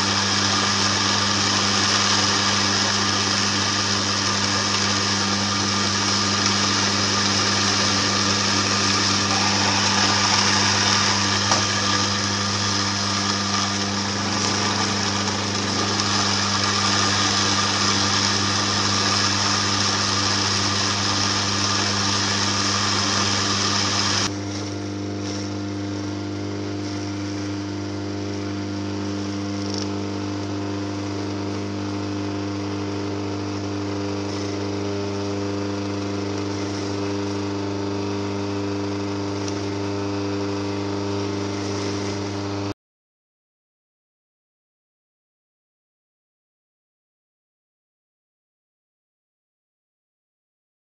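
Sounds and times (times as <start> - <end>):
hissing grind: 0.0 - 24.3
juicer motor hum: 0.0 - 42.7.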